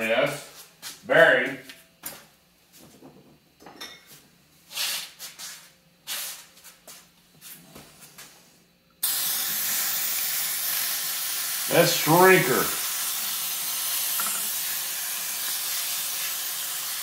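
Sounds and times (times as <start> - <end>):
aerosol spray hissing: 9.0 - 17.0
knocks and clinks of handling: 14.2 - 14.5.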